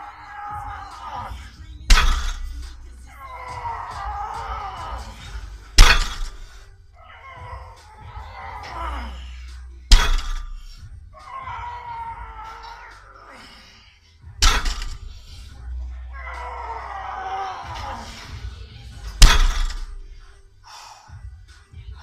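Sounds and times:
barbell dropped on gym floor: 1.9s - 2.5s, 5.8s - 6.6s, 9.9s - 10.7s, 14.4s - 15.1s, 19.2s - 20.0s.

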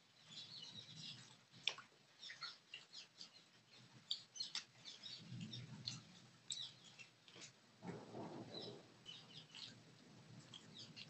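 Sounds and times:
wet chewing and lip smacks: 1.1s - 7.6s, 9.1s - 9.8s, 10.4s - 11.0s.

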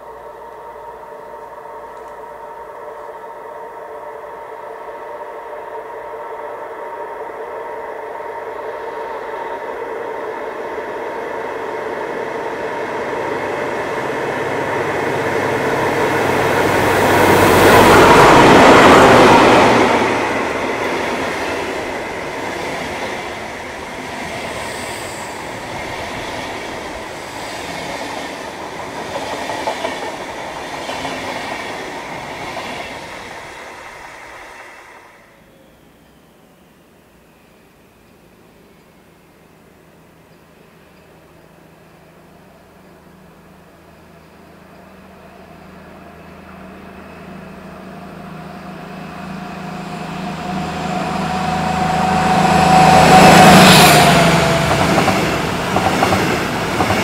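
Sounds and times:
diesel locomotive engine: 0.0s - 57.0s
train wheels clickety-clack: 13.6s - 35.0s, 52.6s - 57.0s.

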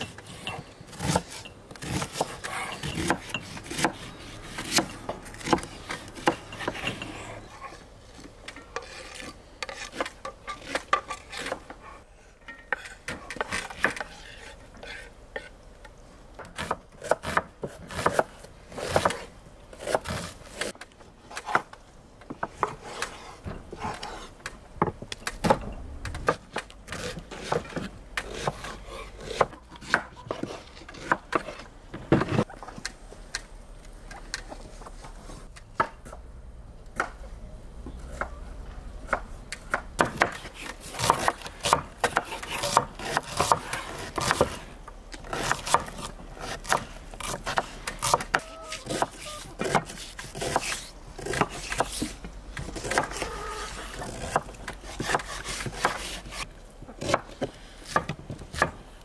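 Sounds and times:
knife chopping on wooden board: 39.1s - 44.6s, 45.3s - 53.3s, 54.0s - 56.4s.

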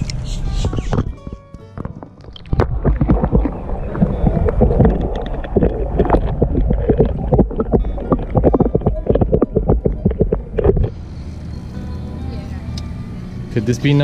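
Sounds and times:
muffled underwater sloshing: 0.0s - 11.0s
knocks against camera underwater: 0.6s - 10.9s.

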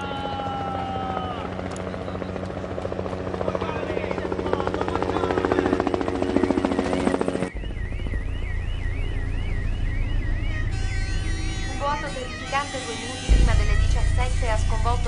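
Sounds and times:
helicopter rotor chopping: 0.0s - 15.0s
emergency siren wailing: 4.6s - 15.0s.

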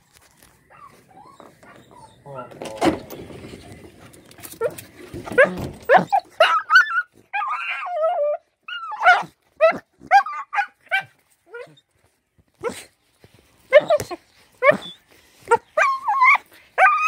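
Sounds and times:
dog whining and yelping: 0.6s - 2.6s, 4.5s - 11.9s, 13.7s - 17.0s.

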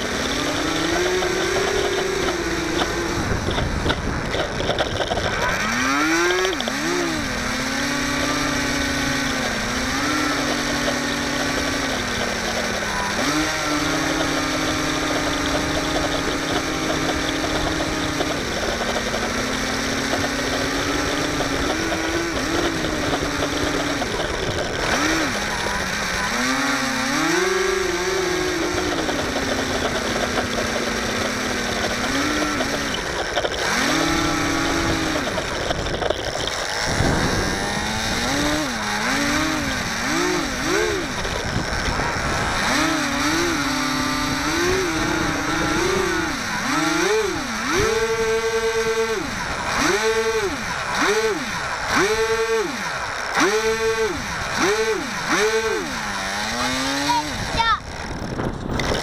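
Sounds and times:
electric motor and propeller whirring: 0.0s - 59.0s
wind noise on microphone: 0.0s - 59.0s.

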